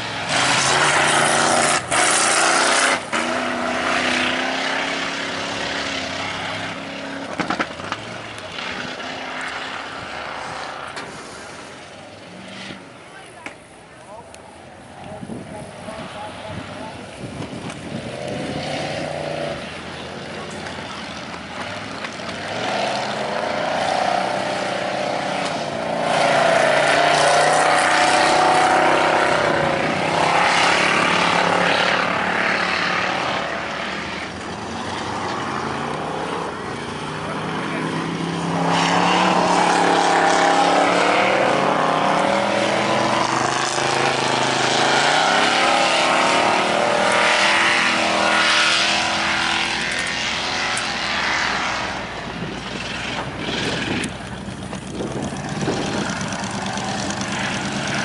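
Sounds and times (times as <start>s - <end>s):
truck engines revving: 0.0s - 58.0s.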